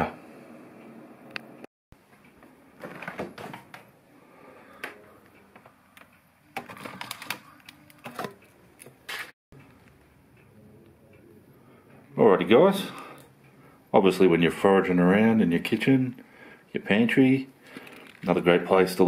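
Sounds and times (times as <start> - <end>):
frozen packets knocking and rustling: 6.6 - 9.3, 17.6 - 18.4.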